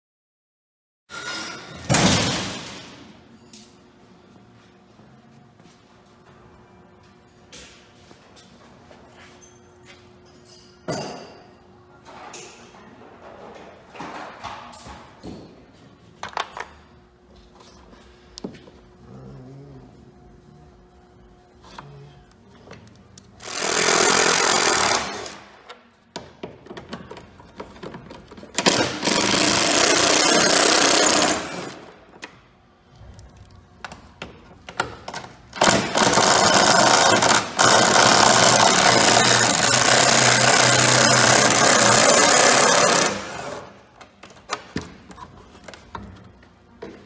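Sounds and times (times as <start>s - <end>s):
handheld power tool running: 23.4s - 25.5s, 28.6s - 31.9s, 35.6s - 43.7s.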